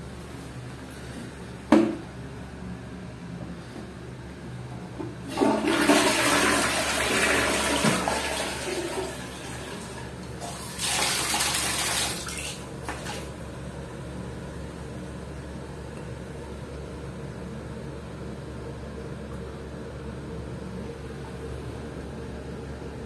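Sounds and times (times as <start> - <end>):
toilet flushing: 5.2 - 13.5
tap running into bucket: 5.3 - 13.3.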